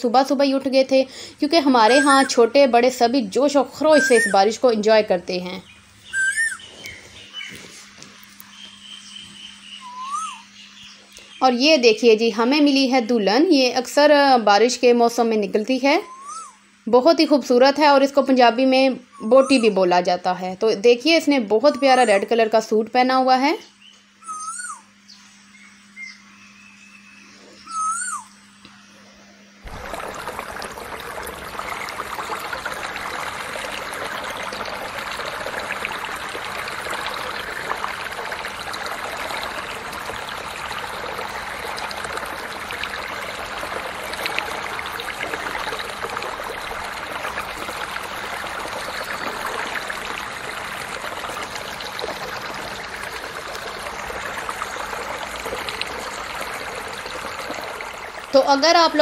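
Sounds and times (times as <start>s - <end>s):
short chirping call: 8.8s - 10.6s
water rushing into gully: 29.6s - 59.0s.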